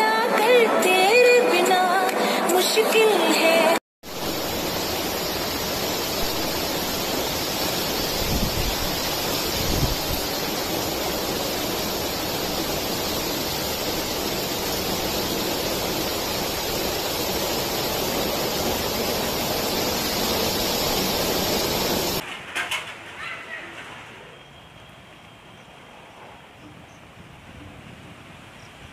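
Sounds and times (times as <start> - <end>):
heavy rain pouring: 3.6 - 22.2.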